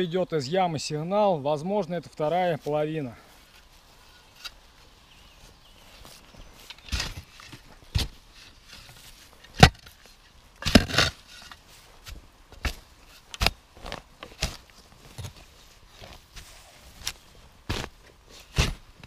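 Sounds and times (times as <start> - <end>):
spade digging in soil: 6.0 - 19.0.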